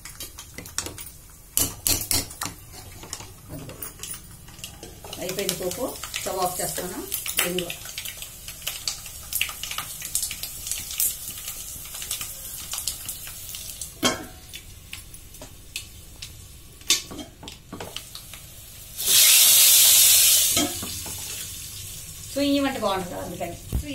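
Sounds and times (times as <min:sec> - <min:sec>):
seeds crackling in hot oil: 0:00.0 - 0:23.9
loud hissing sizzle: 0:04.9 - 0:16.8, 0:17.8 - 0:23.9.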